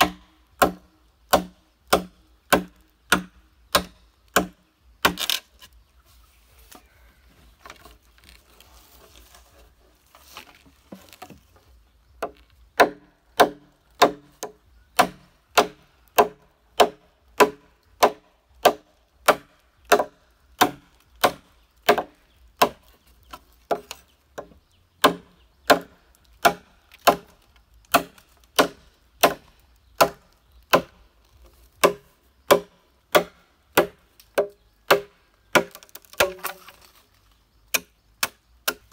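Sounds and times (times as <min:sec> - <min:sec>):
blade chopping bamboo: 0:00.0 - 0:05.6, 0:12.2 - 0:31.0, 0:31.7 - 0:37.0, 0:37.7 - 0:38.9.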